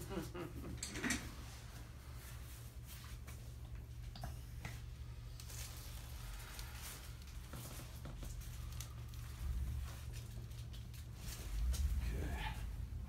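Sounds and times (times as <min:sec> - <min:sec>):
steady low hum: 0:00.0 - 0:13.0
clothing rustles: 0:04.7 - 0:13.0.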